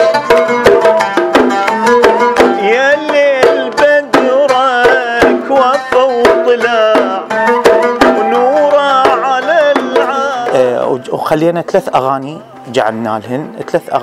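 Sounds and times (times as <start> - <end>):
hand drum strikes: 0.0 - 10.9
plucked oud: 0.0 - 12.7
reed flute melody: 7.2 - 10.4.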